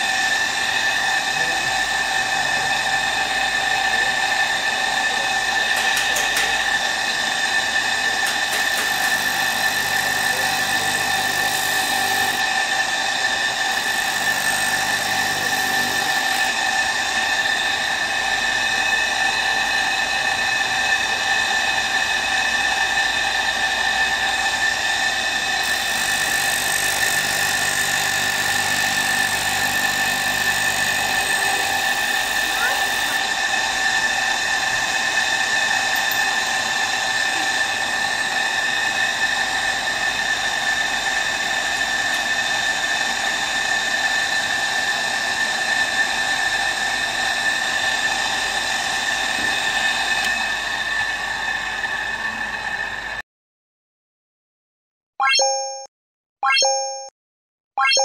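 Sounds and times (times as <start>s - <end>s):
electric motor whine: 0.0s - 53.2s
blade grinding on sandpaper: 8.3s - 12.4s, 13.7s - 16.4s, 25.6s - 33.2s.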